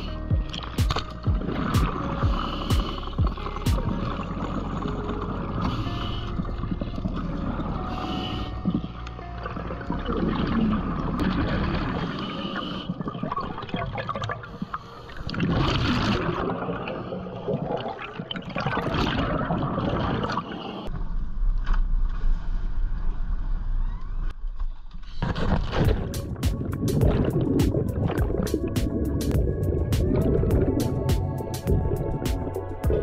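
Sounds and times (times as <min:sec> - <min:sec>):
water gurgling and bubbling: 0:00.0 - 0:20.9, 0:25.3 - 0:33.0.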